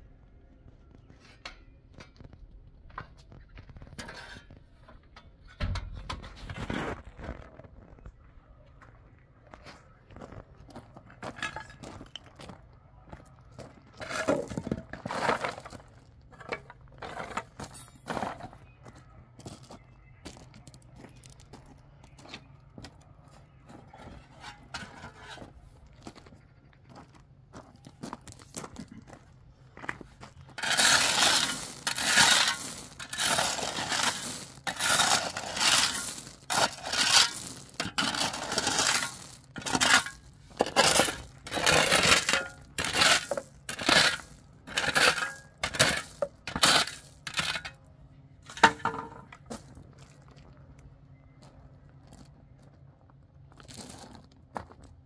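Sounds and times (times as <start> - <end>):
tool scraping gritty soil: 6.2 - 8.1, 13.9 - 18.7, 23.9 - 25.7, 30.3 - 47.8.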